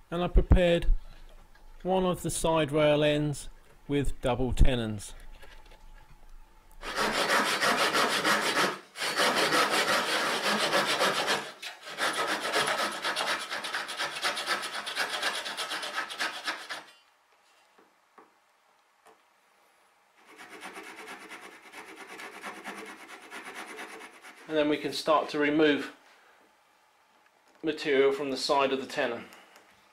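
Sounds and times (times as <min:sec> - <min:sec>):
handsaw cutting wood: 0:06.8 - 0:17.0, 0:20.2 - 0:24.5.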